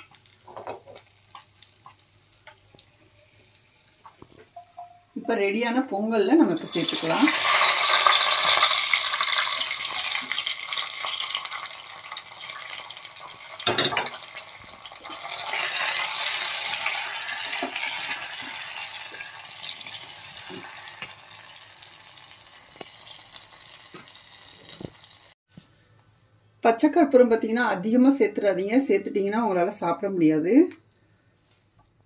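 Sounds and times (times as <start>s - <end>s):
hot ghee sizzling: 0.0s - 4.8s, 6.4s - 25.4s.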